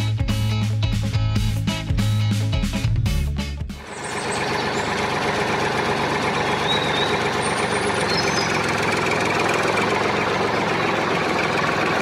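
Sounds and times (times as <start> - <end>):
diesel engine idling: 3.8 - 12.0.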